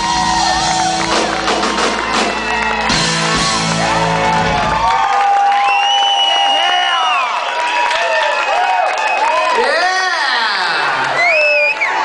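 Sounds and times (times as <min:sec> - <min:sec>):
live rock band playing: 0:00.0 - 0:04.9
crowd whooping: 0:00.0 - 0:12.0.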